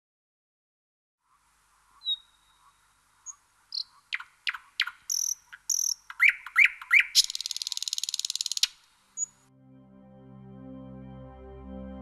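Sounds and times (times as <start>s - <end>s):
animal chirps: 2.0s - 9.4s.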